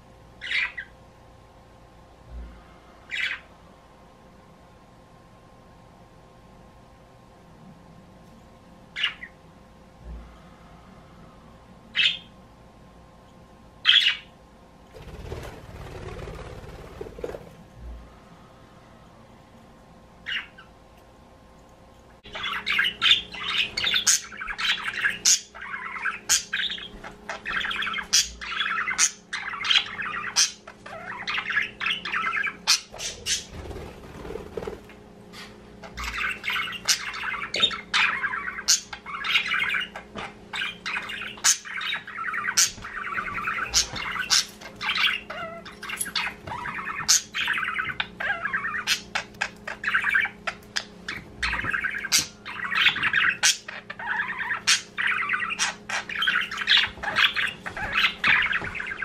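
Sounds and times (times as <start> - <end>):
budgerigars chattering and warbling: 0.4 - 0.9, 9.0 - 9.4, 12.0 - 12.3, 20.3 - 20.7, 22.2 - 34.8, 35.4 - 59.0.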